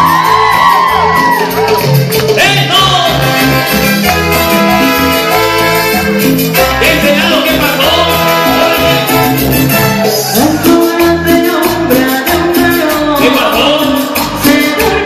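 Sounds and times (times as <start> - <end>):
live latin dance band: 0.0 - 15.0
man singing: 2.3 - 3.6, 6.5 - 15.0.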